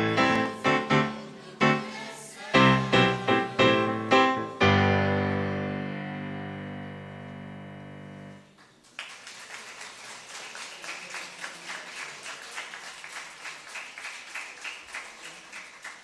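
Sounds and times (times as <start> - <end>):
piano: 0.0 - 8.6
audience applauding: 8.4 - 16.0.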